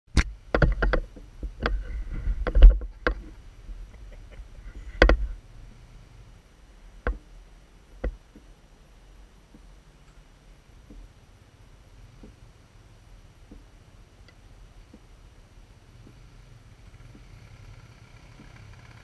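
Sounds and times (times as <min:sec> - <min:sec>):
sharp knocks and thumps: 0:00.2 - 0:05.4, 0:07.0 - 0:07.3, 0:12.2 - 0:12.4, 0:13.4 - 0:13.8
low rumble: 0:00.4 - 0:08.4.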